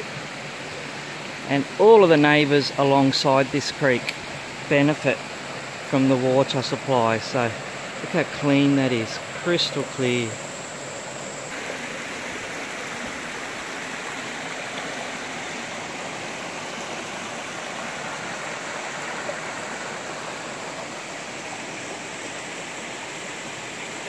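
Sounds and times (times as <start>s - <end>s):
creek flowing over rocks: 0.0s - 24.0s.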